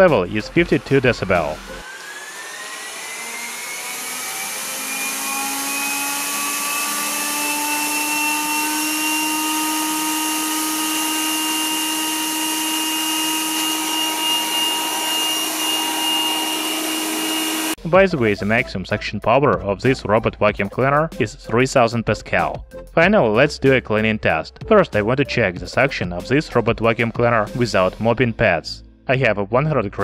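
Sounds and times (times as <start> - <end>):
vacuum fan whine: 0.0 - 17.8
suction rushing hiss: 8.3 - 17.8.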